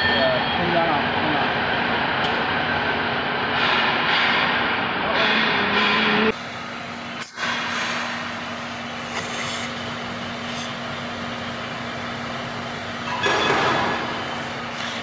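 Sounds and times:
workshop machinery hum: 0.0s - 15.0s.

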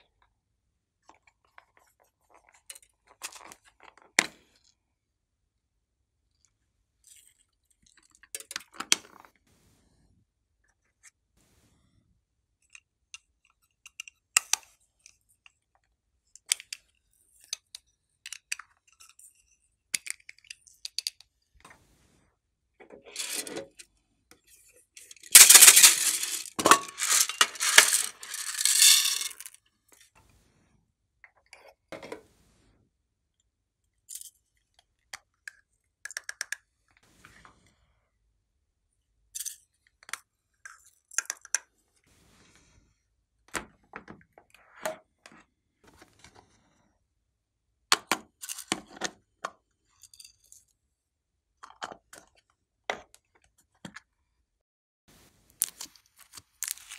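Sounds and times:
rustling and clattering: 23.1s - 23.8s, 25.0s - 29.6s
plastic containers clicking and tapping: 25.2s - 29.5s.

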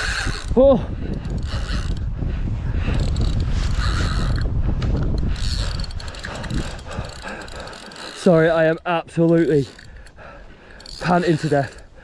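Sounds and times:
fishing reel clicking: 0.0s - 2.1s, 2.8s - 12.0s
person panting heavily: 0.8s - 8.2s, 9.8s - 11.0s.

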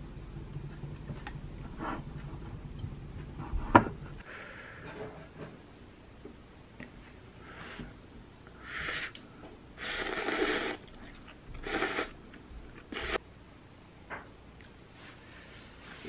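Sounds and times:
person slurping noodles: 9.8s - 12.2s, 12.9s - 13.2s.

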